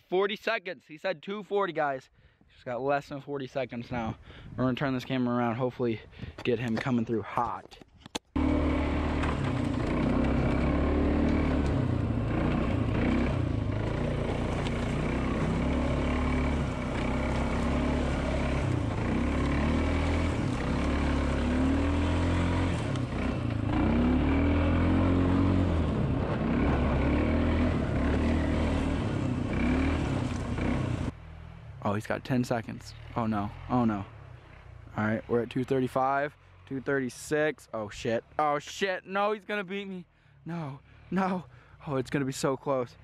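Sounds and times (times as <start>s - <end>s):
quad engine revving: 8.4s - 31.5s, 32.9s - 37.1s.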